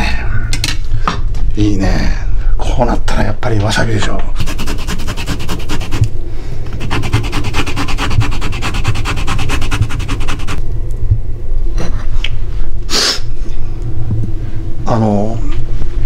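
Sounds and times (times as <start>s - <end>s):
wasabi grating strokes: 4.3s - 6.1s, 6.8s - 10.6s.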